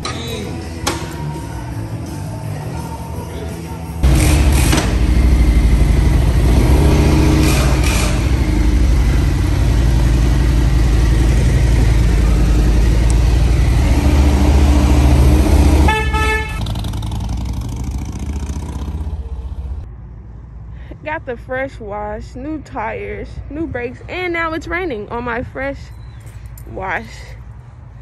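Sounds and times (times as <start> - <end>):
motorcycle engine running: 4.0 - 19.9
motorcycle horn honk: 15.8 - 17.0.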